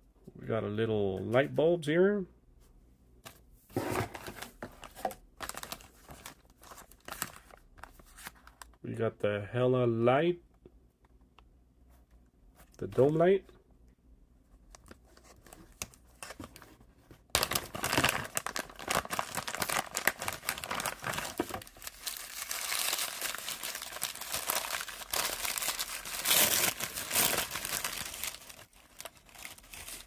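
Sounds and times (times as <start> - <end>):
packaging crinkling and tearing: 4.1 - 8.7, 17.3 - 30.0.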